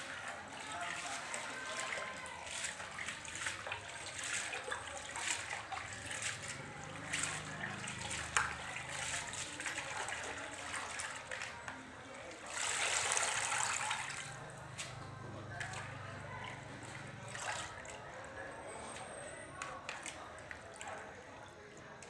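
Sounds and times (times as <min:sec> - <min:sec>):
hands swishing carrots in water: 0:00.0 - 0:15.0
small water splashes: 0:00.0 - 0:22.0
water pouring into basin: 0:00.0 - 0:22.0.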